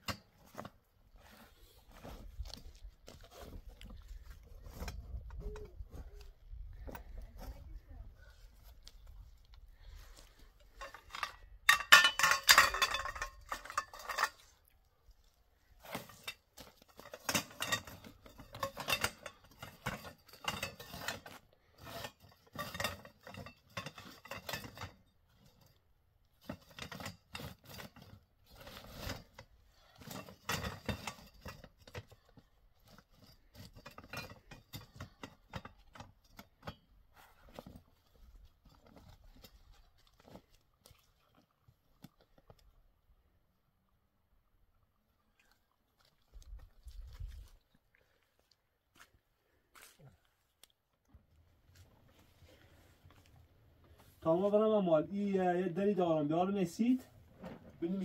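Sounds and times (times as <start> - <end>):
metal poles clinking and rattling: 0.0 - 0.8, 10.2 - 14.8, 15.8 - 40.5.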